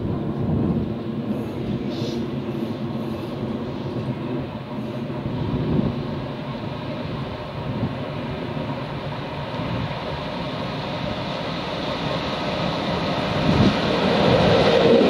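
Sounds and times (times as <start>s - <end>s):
freight train rumbling on rails: 0.0s - 15.0s.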